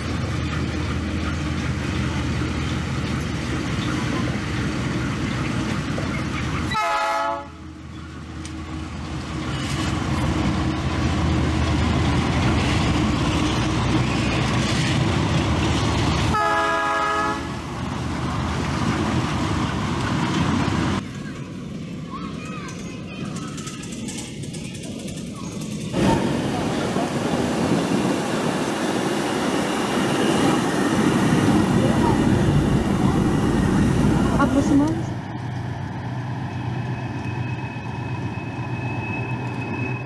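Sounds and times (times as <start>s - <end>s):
diesel locomotive engine rumble: 0.0s - 40.0s
locomotive horn blasts: 6.7s - 7.6s, 16.3s - 17.6s.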